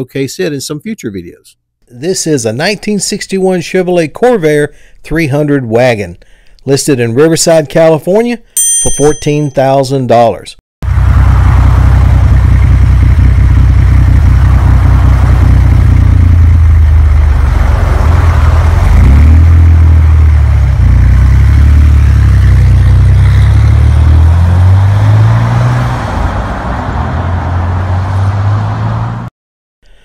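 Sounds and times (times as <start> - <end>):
car engine revving: 10.8 - 29.3.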